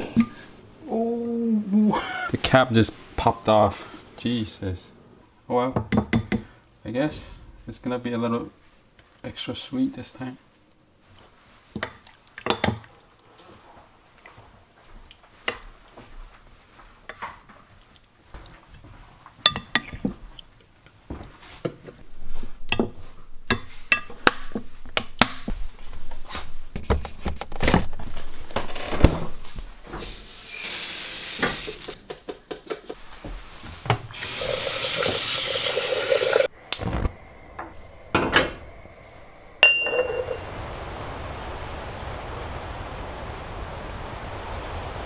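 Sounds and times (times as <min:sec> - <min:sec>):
running water: 0:34.2 - 0:36.5.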